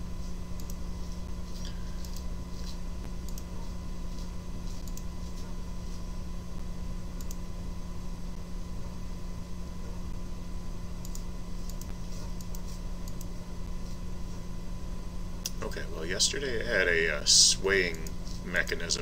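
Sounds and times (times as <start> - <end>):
low electrical hum: 0.0 - 19.0
computer mouse clicks: 0.6 - 0.8, 1.6 - 3.5, 4.2 - 5.1, 7.2 - 7.4, 11.0 - 13.3.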